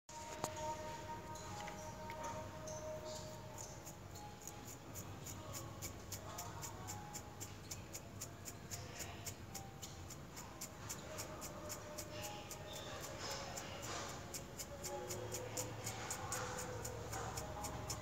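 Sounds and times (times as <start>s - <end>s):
faint music with ticking beat: 0.1s - 18.0s.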